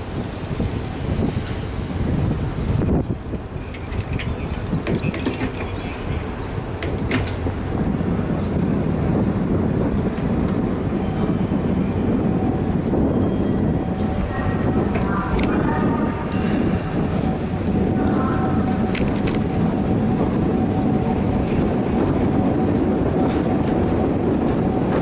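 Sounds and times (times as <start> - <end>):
bicycle rattles and clicks: 0.0 - 18.0, 18.6 - 25.0
road rumble: 0.0 - 25.0
wind on microphone: 0.0 - 25.0.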